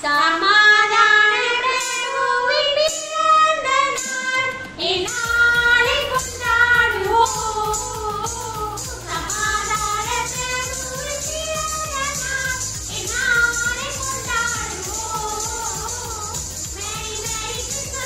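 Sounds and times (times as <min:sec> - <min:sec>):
high singing voice: 0:00.0 - 0:18.0
backing music: 0:03.6 - 0:18.0
low steady beat: 0:05.1 - 0:18.0.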